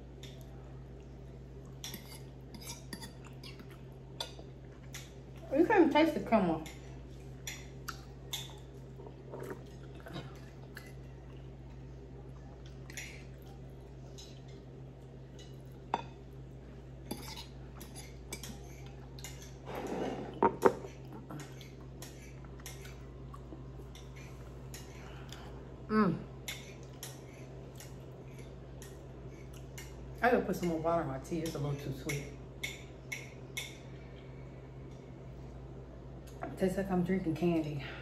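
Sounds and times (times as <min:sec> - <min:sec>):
fork scraping ceramic plate: 0:19.7 - 0:20.8.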